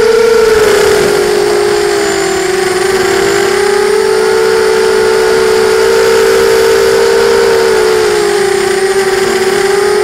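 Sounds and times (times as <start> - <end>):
quadcopter propellers whining: 0.0 - 10.0.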